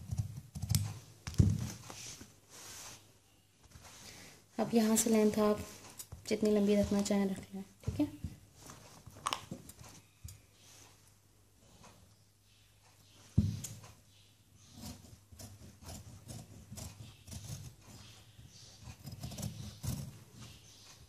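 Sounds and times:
fabric rustling: 1.5 - 6.0, 8.4 - 10.0.

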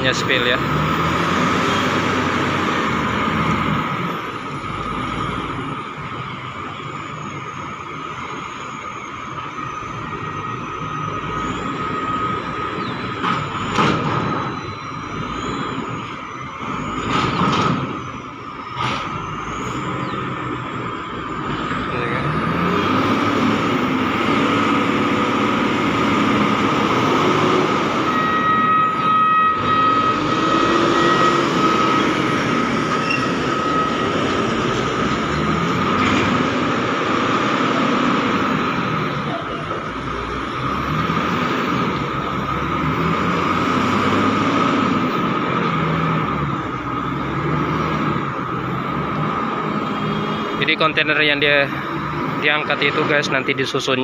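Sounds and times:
heavy diesel engines running: 0.0 - 54.0
truck engine pulling away: 0.0 - 54.0
steady high whine: 17.8 - 42.5.

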